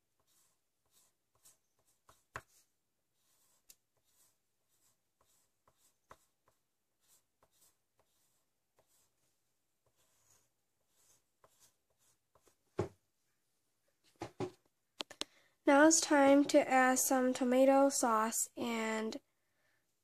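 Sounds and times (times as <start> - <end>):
pencil scratching on paper: 0.0 - 12.9.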